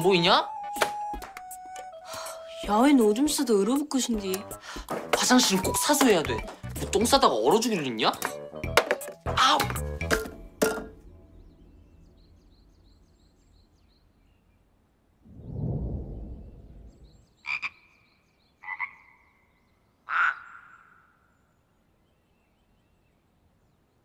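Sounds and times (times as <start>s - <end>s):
low whoosh: 15.3s - 17.3s.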